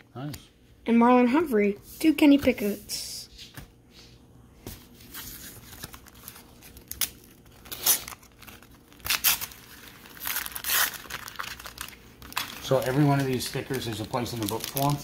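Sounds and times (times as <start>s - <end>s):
foil wrapper crinkling and tearing: 5.3s - 15.0s.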